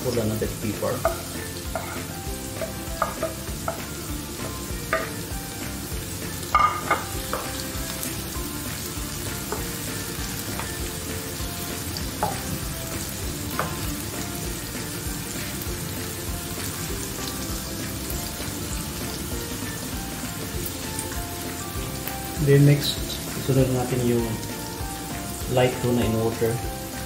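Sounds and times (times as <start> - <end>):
vegetables sizzling in oil: 0.0 - 27.0
spatula tapping pan: 1.0 - 5.4, 6.4 - 7.8, 9.3 - 11.0, 12.0 - 12.7, 13.4 - 13.9.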